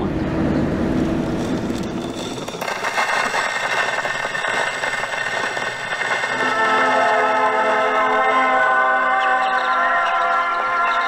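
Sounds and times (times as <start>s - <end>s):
gramophone needle crackling hiss: 1.4s - 9.4s.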